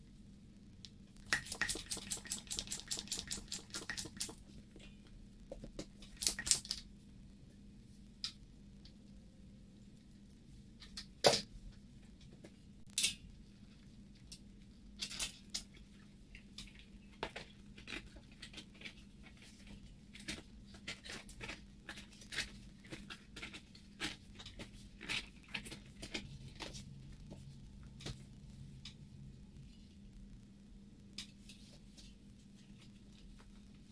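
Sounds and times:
faint steady hum: 0.0s - 33.9s
sharp snaps: 6.1s - 6.8s.

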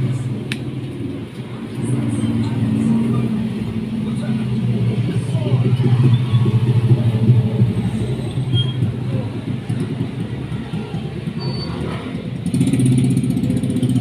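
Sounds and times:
engine running with pulsing note: 0.0s - 11.4s.

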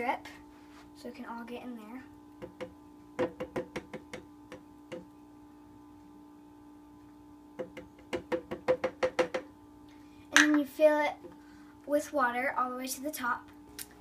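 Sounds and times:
plastic cup knocking on bottle rim: 2.4s - 5.1s, 7.6s - 9.5s.

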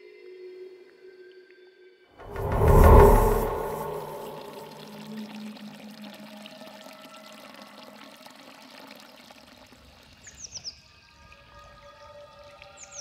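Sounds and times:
soft sustained music tones: 0.0s - 5.6s.

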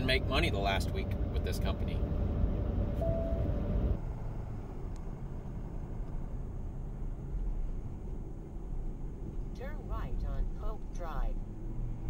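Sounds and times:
road and engine noise in cab: 0.0s - 12.0s.

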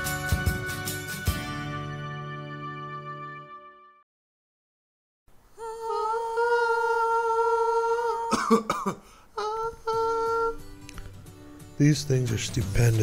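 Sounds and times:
person humming a long note: 5.5s - 8.6s, 9.4s - 10.6s
rough cough-like burst: 8.3s - 9.2s.

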